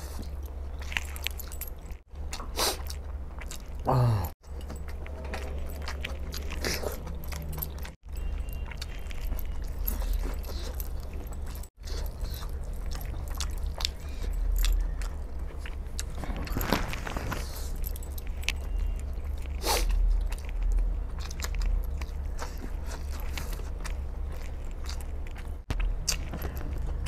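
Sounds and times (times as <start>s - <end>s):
steady low hum: 0.0s - 27.0s
wet chewing and smacking: 0.0s - 27.0s
metal rings and chains clinking: 0.1s - 2.1s, 4.4s - 15.4s, 16.1s - 19.4s, 25.7s - 27.0s.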